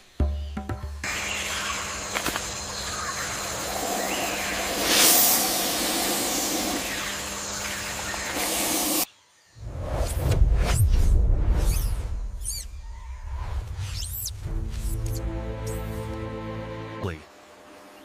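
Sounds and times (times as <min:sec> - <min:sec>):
snake hissing: 0:02.9 - 0:09.1.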